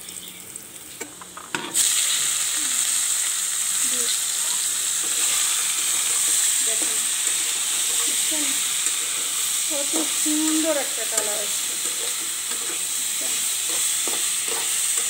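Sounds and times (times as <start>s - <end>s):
hot oil sizzling loudly: 0.0s - 15.0s
metal spatula stirring: 4.4s - 15.0s.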